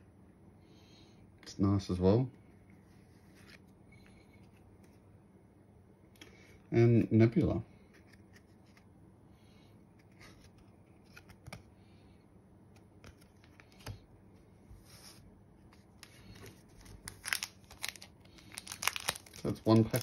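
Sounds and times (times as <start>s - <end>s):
foil packs crinkling: 16.0s - 20.0s.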